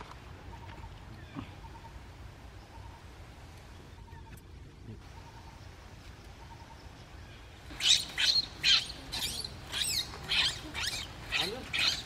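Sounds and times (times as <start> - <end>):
baby monkey screaming: 7.7 - 12.0.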